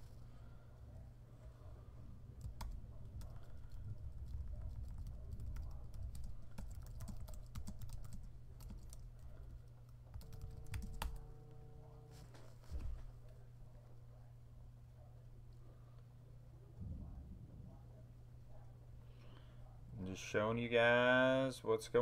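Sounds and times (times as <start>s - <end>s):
steady low hum: 0.0s - 22.0s
keyboard typing: 2.4s - 11.3s
faint steady tone: 10.2s - 12.4s.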